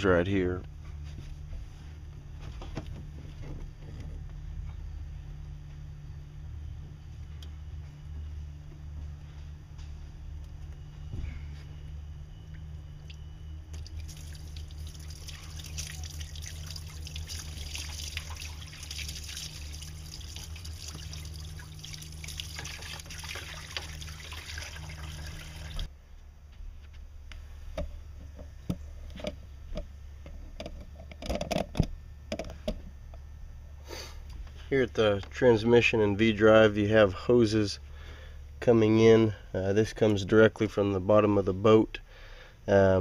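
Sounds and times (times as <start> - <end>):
water pouring from hose: 13.8 - 25.9.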